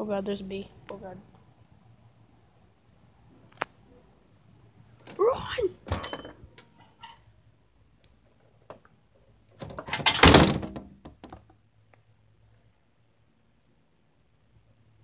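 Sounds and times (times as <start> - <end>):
door shutting thunk: 9.6 - 11.2.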